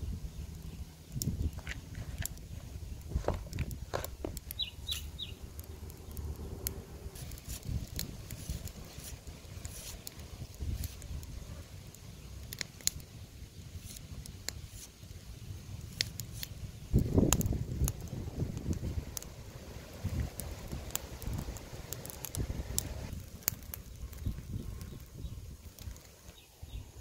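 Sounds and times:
cleaver slicing onion: 0:07.2 - 0:11.0.

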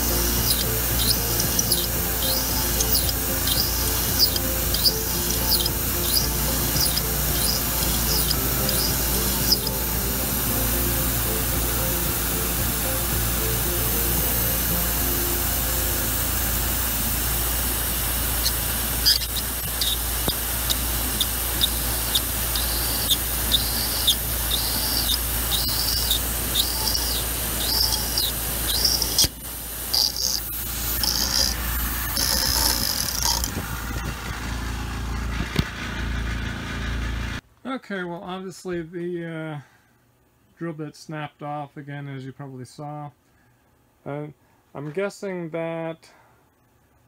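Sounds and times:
drill bit squealing: 0:00.0 - 0:33.7
milling machine humming: 0:00.0 - 0:37.4.

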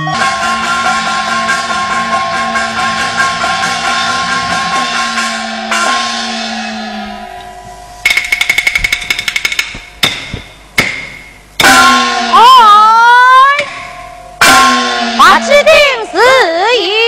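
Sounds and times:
sustained instrumental tones: 0:00.0 - 0:17.0
percussion roll of hard strokes: 0:00.1 - 0:12.6.

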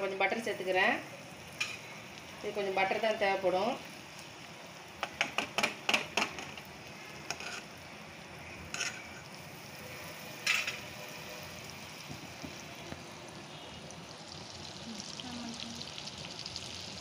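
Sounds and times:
butter sizzling in a frying pan: 0:00.0 - 0:17.0
spatula scraping a pan: 0:07.2 - 0:07.9, 0:08.7 - 0:11.5.

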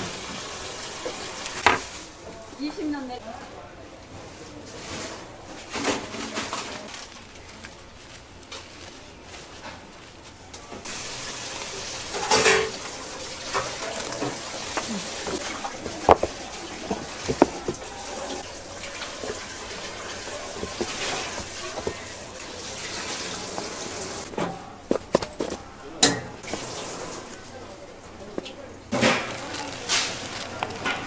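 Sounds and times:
tap water running into sink: 0:10.9 - 0:24.3, 0:26.4 - 0:27.3
kitchenware knocking and clinking: 0:12.1 - 0:12.9, 0:13.5 - 0:22.2.

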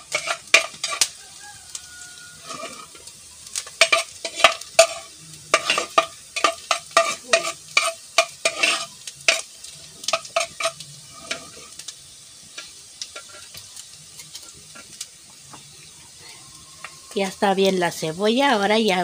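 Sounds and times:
metal spoon scraping a pot: 0:00.0 - 0:01.1, 0:02.4 - 0:03.1, 0:03.7 - 0:11.8
onion sizzling in oil: 0:00.0 - 0:19.0.

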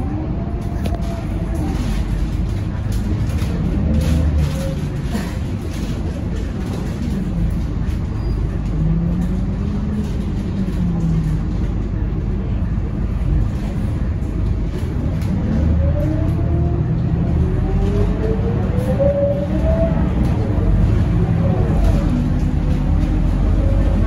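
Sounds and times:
bus diesel engine rumbling: 0:00.0 - 0:24.0
road noise: 0:00.0 - 0:24.0.

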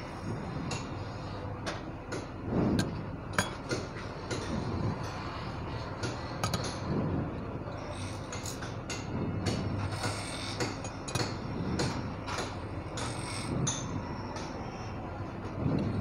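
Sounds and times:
steady background hum: 0:00.0 - 0:16.0.

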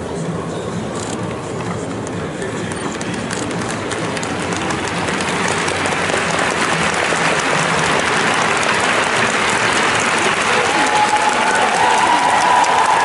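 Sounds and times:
crowd applauding: 0:02.9 - 0:13.0.

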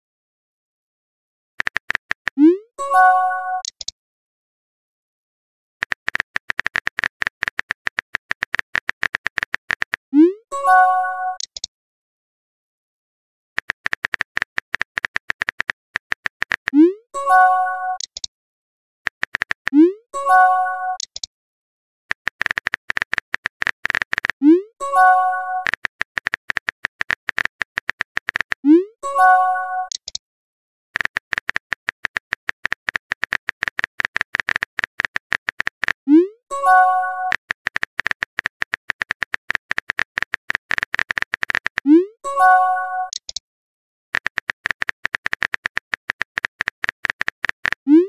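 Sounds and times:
keyboard clicks: 0:01.6 - 0:02.6, 0:03.6 - 0:04.0, 0:05.8 - 0:10.3, 0:11.3 - 0:11.7, 0:13.6 - 0:18.3, 0:19.1 - 0:20.0, 0:20.9 - 0:21.3, 0:22.1 - 0:30.2, 0:31.0 - 0:43.4, 0:44.2 - 0:48.0.

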